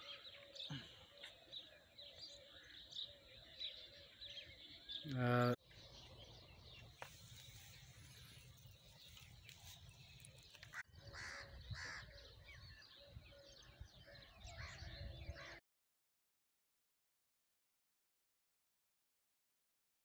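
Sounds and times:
small birds chirping: 0.0s - 15.6s
crows cawing: 10.6s - 12.4s.

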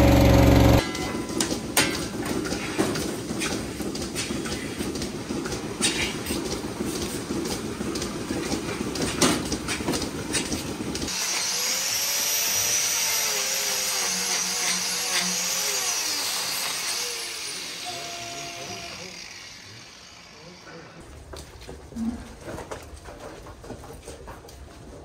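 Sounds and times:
milking machinery rumbling: 0.0s - 11.2s.

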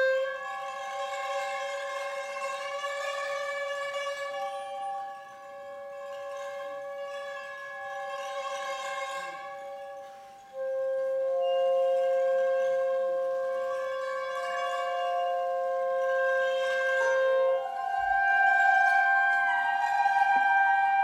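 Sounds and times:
chamber ensemble long held notes: 0.0s - 21.0s.

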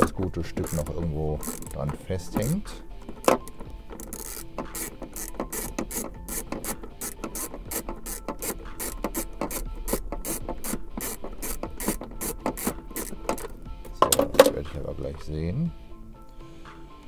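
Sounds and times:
ratchet wrench clicking: 0.0s - 13.6s.

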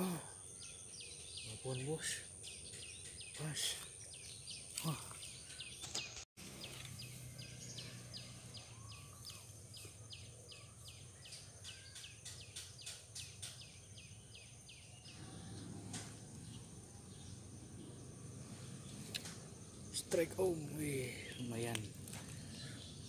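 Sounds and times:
high insect drone: 14.3s - 23.0s.

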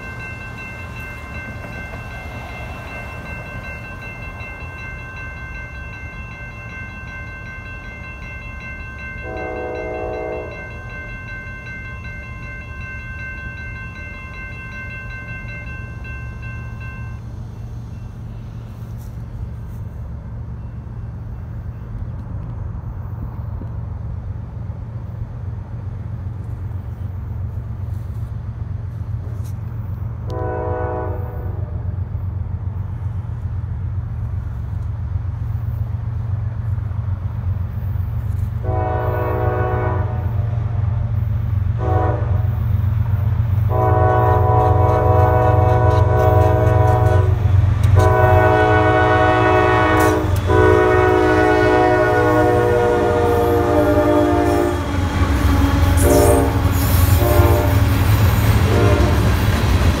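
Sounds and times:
low train rumble: 0.0s - 60.0s
locomotive air horn blasts: 9.2s - 10.7s, 30.2s - 31.9s, 38.6s - 40.8s, 41.8s - 42.7s, 43.7s - 58.0s, 58.6s - 59.4s.

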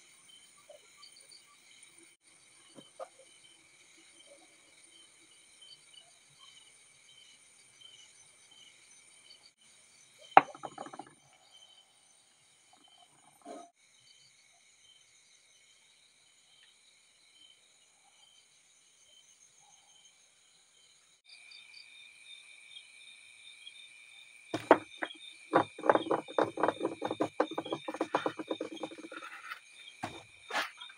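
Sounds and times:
crickets chirping: 11.1s - 30.9s
rapid knocks and clatter: 24.6s - 30.8s.

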